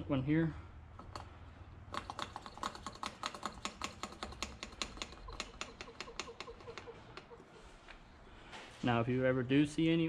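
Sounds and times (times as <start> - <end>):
hand pump clicking: 1.0 - 1.3, 1.9 - 7.4.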